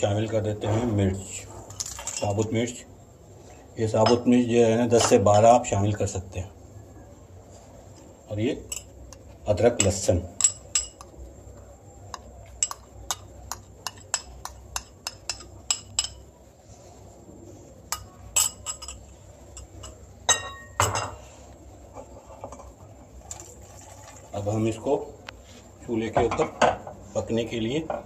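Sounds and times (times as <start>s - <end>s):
metal spoon clinking on bowl: 8.6s - 11.2s, 12.1s - 16.3s, 17.9s - 21.2s.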